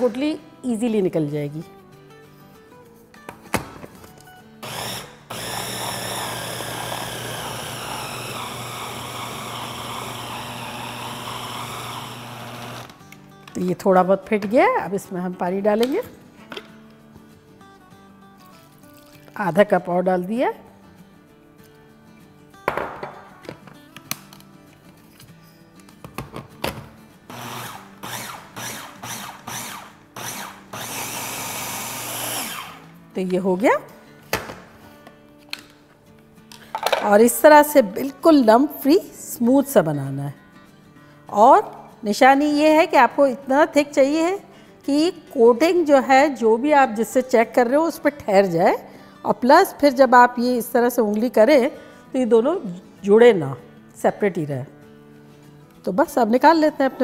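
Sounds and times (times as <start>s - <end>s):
food chopper motor: 4.6s - 13.0s, 27.3s - 32.8s.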